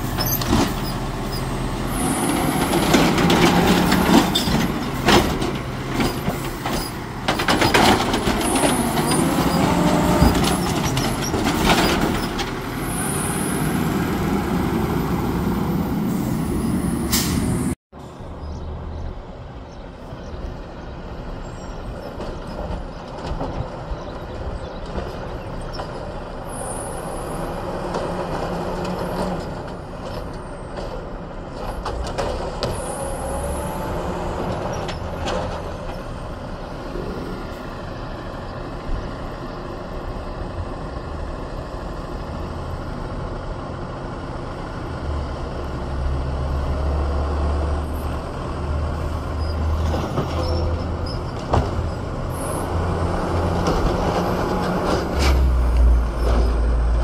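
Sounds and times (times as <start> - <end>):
garbage truck running: 0.0 - 17.8, 21.1 - 57.0
air brake hisses: 16.0 - 17.7.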